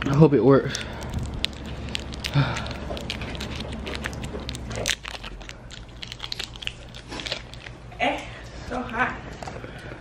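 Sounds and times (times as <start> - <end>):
plastic wrapper crinkling: 0.0 - 7.8.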